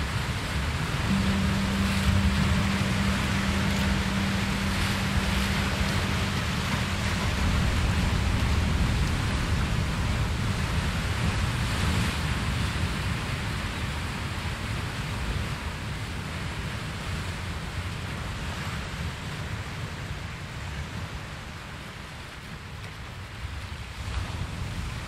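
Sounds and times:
ocean surf: 0.0s - 25.0s
low held tone: 0.7s - 12.3s.

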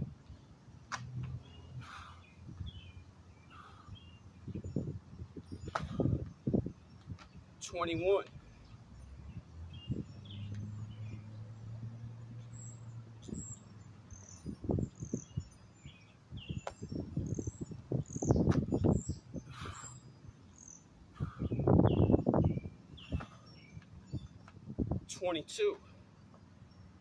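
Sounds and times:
birds chirping: 0.0s - 27.0s
man breathing hard: 3.5s - 4.0s, 19.4s - 20.0s, 21.1s - 21.6s.

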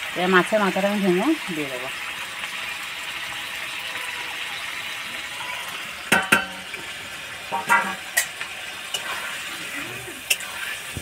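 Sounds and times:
curry sizzling in a pan: 0.0s - 11.0s
steel utensils clinking on pan: 5.4s - 6.9s, 7.5s - 9.2s.

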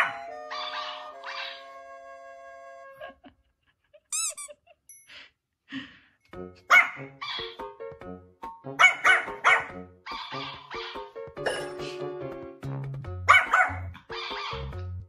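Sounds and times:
puppy yapping: 8.8s - 11.0s, 13.3s - 14.7s.

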